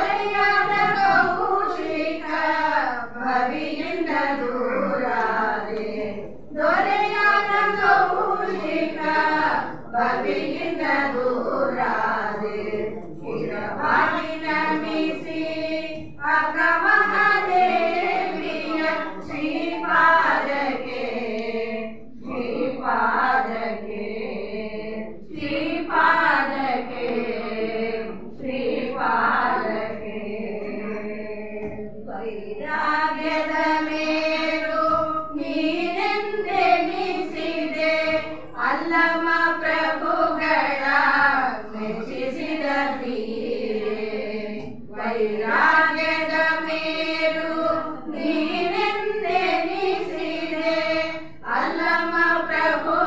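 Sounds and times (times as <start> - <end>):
women singing into microphone: 0.0 - 53.0.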